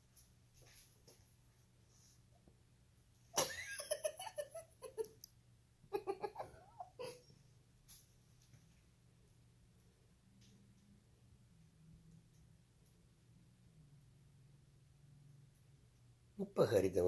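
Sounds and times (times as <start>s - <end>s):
person laughing: 3.4s - 5.2s, 5.9s - 7.3s.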